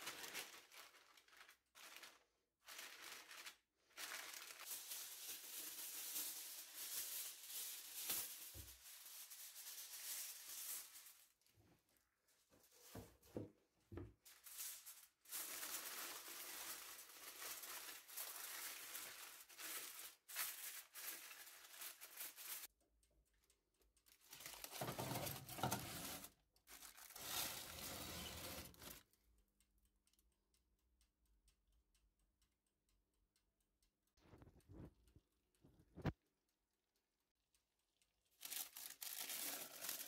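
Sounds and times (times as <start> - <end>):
aluminium foil crinkling: 0.0 - 11.7, 14.2 - 22.7, 24.1 - 29.0, 38.3 - 40.0.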